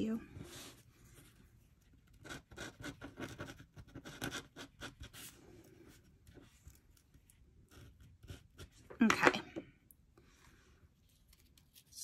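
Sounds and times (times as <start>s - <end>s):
glue pen scratching on cardstock: 2.0s - 5.3s, 7.6s - 8.8s.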